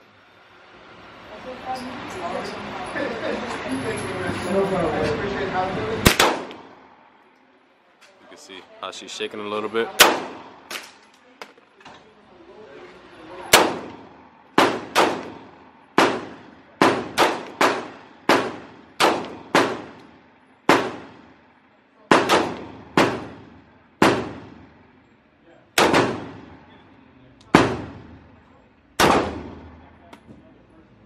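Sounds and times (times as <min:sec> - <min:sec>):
pistol shots echoing indoors: 0:06.0 - 0:06.7, 0:14.6 - 0:15.4, 0:16.0 - 0:20.1, 0:22.1 - 0:24.6, 0:25.8 - 0:26.8, 0:29.0 - 0:29.8.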